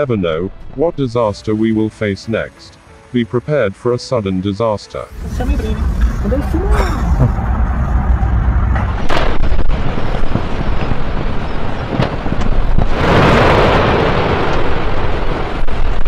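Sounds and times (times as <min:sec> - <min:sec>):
loud rushing surge: 0:05.1 - 0:15.7
deep volcanic rumble: 0:05.1 - 0:16.0
loud eruption blasts: 0:05.1 - 0:16.0.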